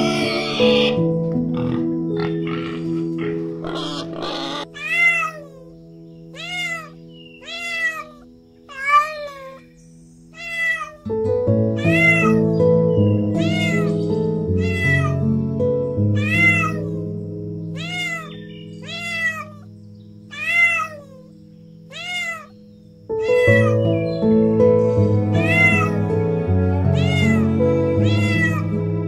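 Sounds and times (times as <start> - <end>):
cat meowing: 0.0 - 1.0, 3.6 - 5.7, 6.3 - 9.7, 10.3 - 11.2, 11.8 - 12.4, 13.4 - 15.3, 16.2 - 17.0, 17.8 - 19.7, 20.3 - 21.3, 21.9 - 23.9, 25.4 - 26.0, 27.0 - 28.7
background music: 0.0 - 29.0.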